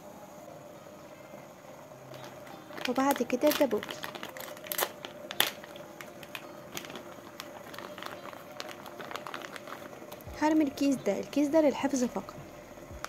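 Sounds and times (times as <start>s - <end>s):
plastic packet crinkling: 2.1s - 10.6s.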